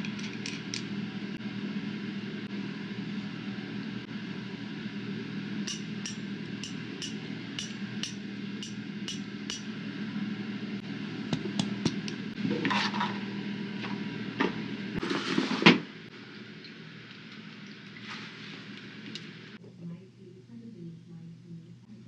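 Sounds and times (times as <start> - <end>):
low hum: 0.0 - 15.3.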